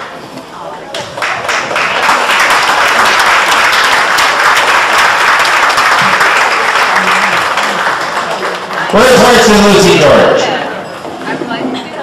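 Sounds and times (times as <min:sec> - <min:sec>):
audience applauding: 0:01.2 - 0:10.3.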